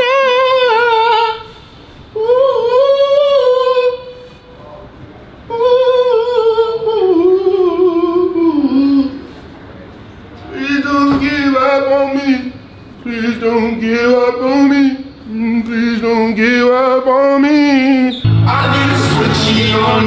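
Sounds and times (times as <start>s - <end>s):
man singing unaccompanied: 10.6s - 20.0s.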